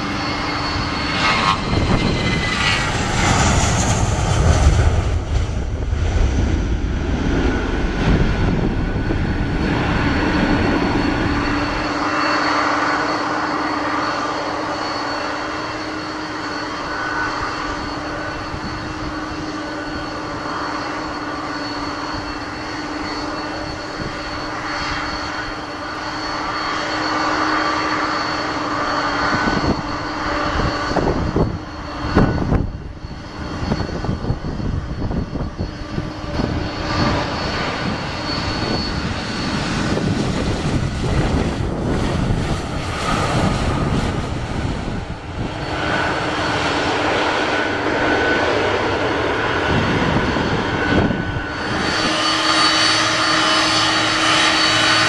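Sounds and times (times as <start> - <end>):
jet engines rumbling at take-off: 0.0 - 55.0
turbofans whining: 0.0 - 55.0.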